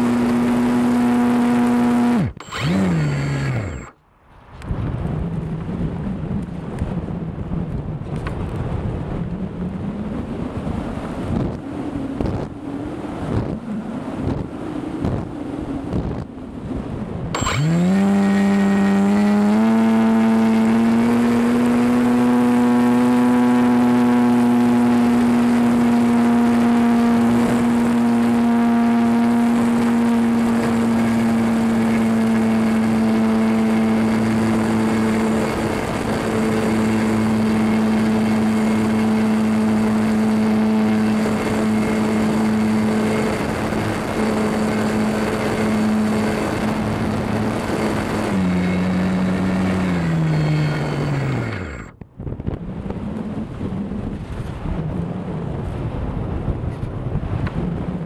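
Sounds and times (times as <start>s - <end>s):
model plane motor and propeller: 0.0s - 4.0s, 17.2s - 52.0s.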